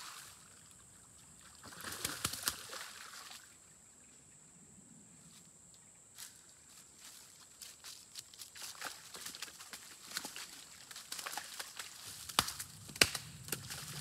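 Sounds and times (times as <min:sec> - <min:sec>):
sharp water slaps: 0:01.6 - 0:03.4, 0:09.2 - 0:14.0.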